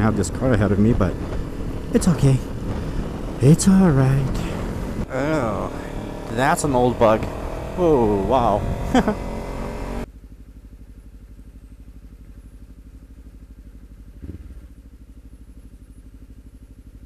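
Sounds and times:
rush of riding noise: 0:00.0 - 0:10.1, 0:14.0 - 0:15.1
motorcycle engine idling: 0:00.0 - 0:17.0.

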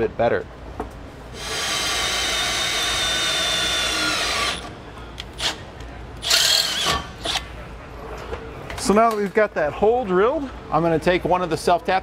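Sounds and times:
drill boring through steel: 0:01.4 - 0:04.6.

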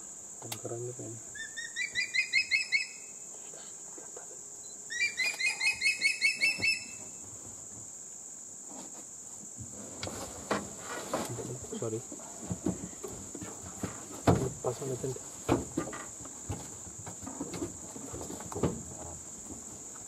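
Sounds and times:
insects droning: 0:00.0 - 0:20.0
bird rapid repeated calls: 0:01.4 - 0:03.2, 0:04.9 - 0:07.0.

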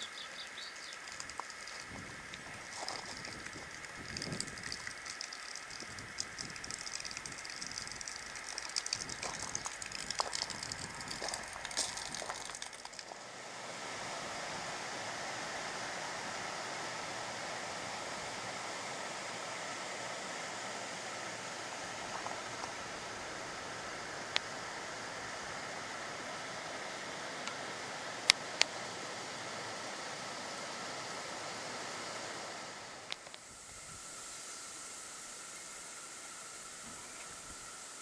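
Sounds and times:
crackling and clicking: 0:00.8 - 0:13.2
stream flowing over stones: 0:00.9 - 0:13.3.

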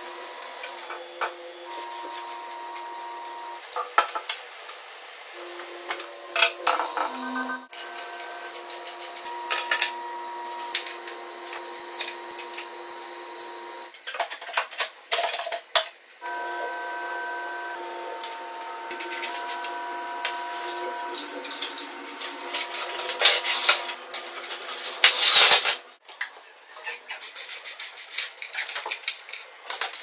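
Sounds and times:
steady hum of held tones: 0:07.0 - 0:13.9, 0:16.2 - 0:24.0
metal parts clicking and rattling: 0:21.3 - 0:25.8, 0:27.2 - 0:30.0.

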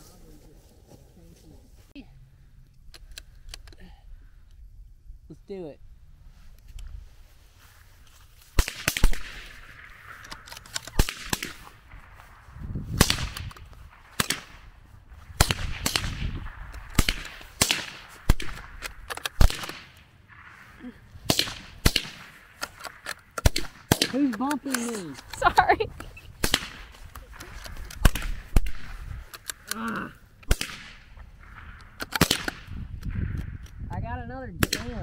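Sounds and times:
rifle shots cracking: 0:08.6 - 0:12.4, 0:13.0 - 0:20.6, 0:21.2 - 0:25.6, 0:26.4 - 0:29.8, 0:30.4 - 0:33.7.

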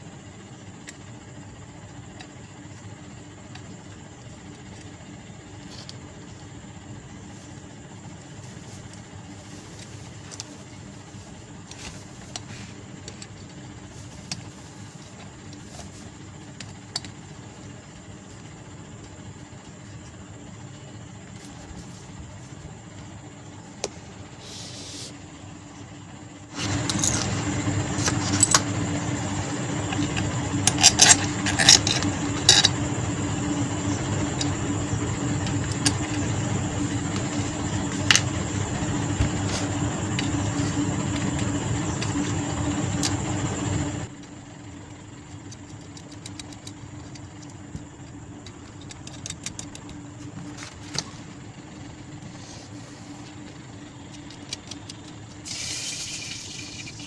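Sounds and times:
steady loud hum with hiss: 0:00.0 - 0:57.0
small metal parts clinking: 0:26.6 - 0:27.4, 0:28.0 - 0:28.7, 0:30.0 - 0:32.8.

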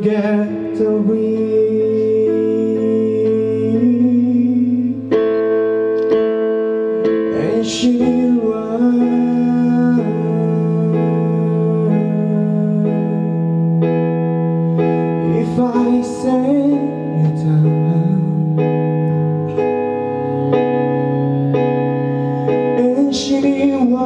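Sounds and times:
man singing: 0:00.0 - 0:05.4, 0:07.2 - 0:13.7, 0:15.2 - 0:19.1, 0:22.4 - 0:24.0
guitar accompaniment: 0:00.0 - 0:24.0
keyboard chords: 0:00.0 - 0:24.0.

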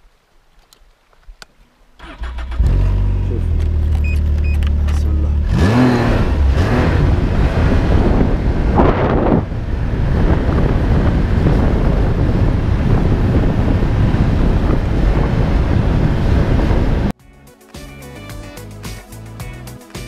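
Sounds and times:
snowmobile engine running: 0:04.9 - 0:17.1
wind rumbling over microphone: 0:05.5 - 0:17.2.

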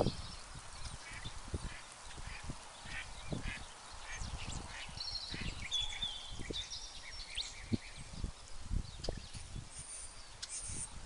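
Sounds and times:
birds chirping and whistling: 0:02.8 - 0:10.9.

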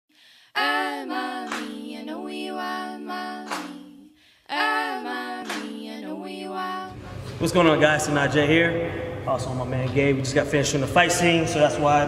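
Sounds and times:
person singing: 0:00.6 - 0:06.9.

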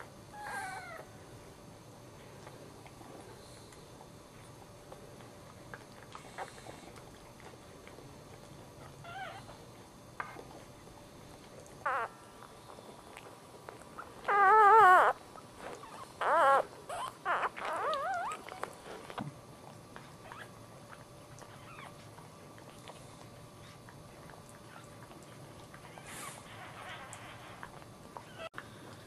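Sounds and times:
puppy squealing: 0:00.4 - 0:01.1, 0:09.0 - 0:09.5, 0:11.8 - 0:12.2, 0:14.2 - 0:15.2, 0:15.8 - 0:18.6.

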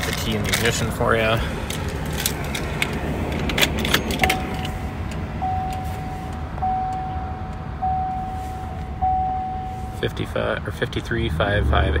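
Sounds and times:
low steady rumble: 0:00.0 - 0:12.0
dashboard warning chime: 0:03.8 - 0:10.2.

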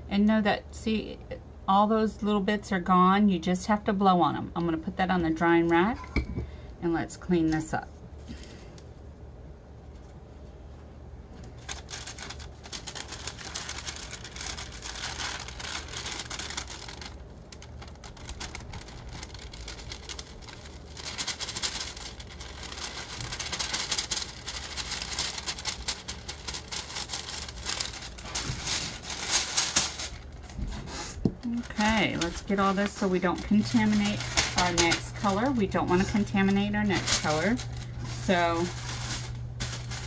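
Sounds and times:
paper rustling and crinkling: 0:11.3 - 0:40.0.

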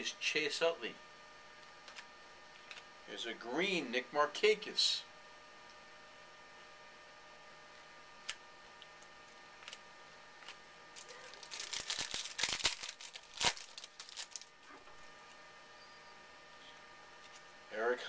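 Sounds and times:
wrapper ripping: 0:10.4 - 0:15.0
card wrapper crinkling: 0:10.4 - 0:15.1.

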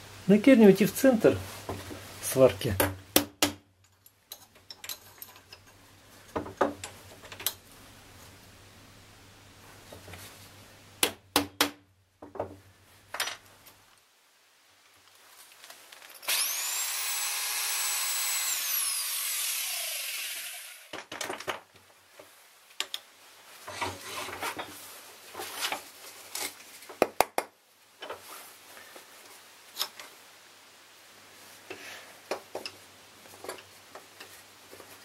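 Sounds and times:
metal parts clicking and knocking: 0:03.8 - 0:05.7
electric drill whining: 0:16.2 - 0:20.9.

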